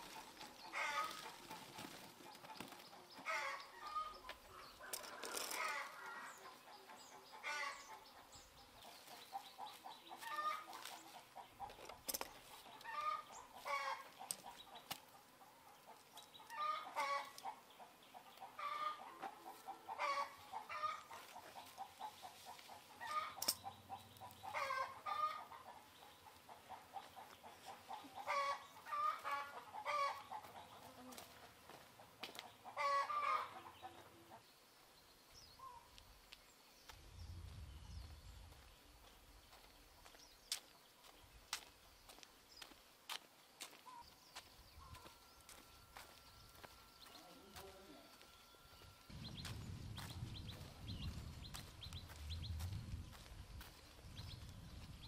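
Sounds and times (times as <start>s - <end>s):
chickens clucking: 0.0s - 34.5s.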